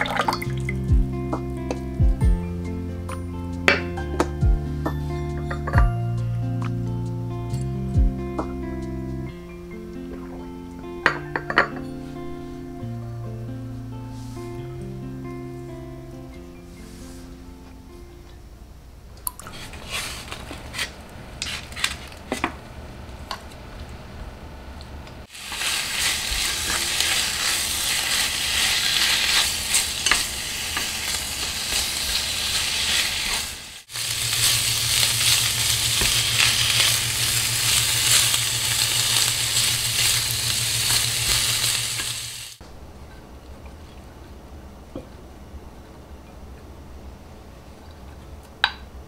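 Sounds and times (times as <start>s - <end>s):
steady low hum: 0.7s - 3.6s, 33.8s - 49.0s
meat sizzling in a frying pan: 25.3s - 42.6s.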